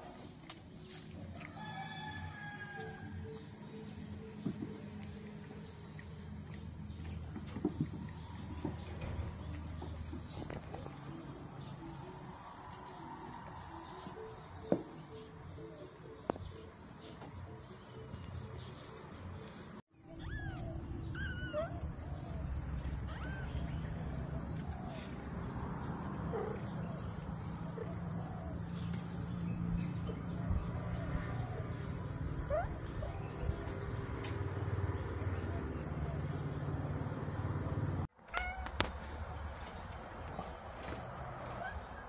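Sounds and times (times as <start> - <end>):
kittens mewing: 20.1 - 22.0.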